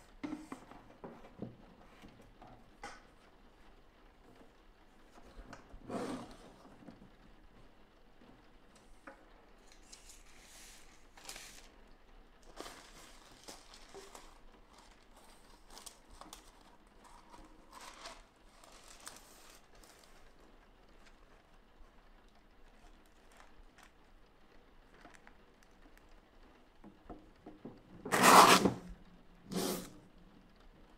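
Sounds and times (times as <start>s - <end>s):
paper rustling and sliding: 9.6s - 11.8s, 12.4s - 21.4s, 28.1s - 30.0s.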